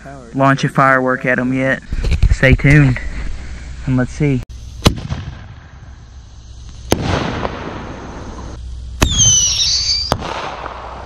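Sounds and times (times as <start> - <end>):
firework crackling: 1.9 - 11.0
firework bangs: 4.6 - 11.0
shrill firework whistle: 6.9 - 10.8.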